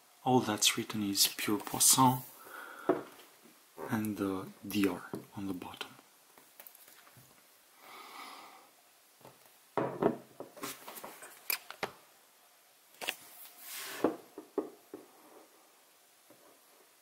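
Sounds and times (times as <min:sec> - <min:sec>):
glass bottle knocking on table: 0:09.8 - 0:10.3.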